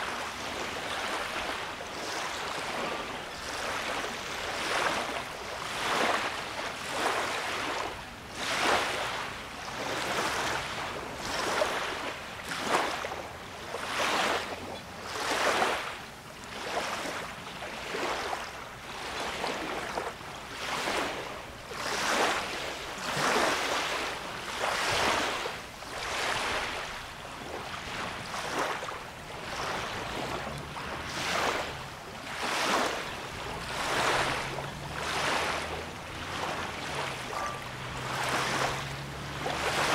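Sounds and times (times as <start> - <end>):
waves lapping at shore: 0.0 - 39.9.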